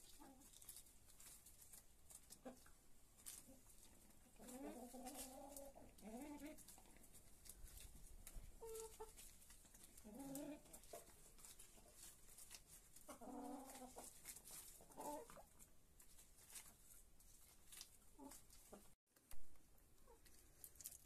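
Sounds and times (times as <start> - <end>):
hens clucking: 0.0 - 0.8, 1.4 - 15.7, 18.0 - 19.0.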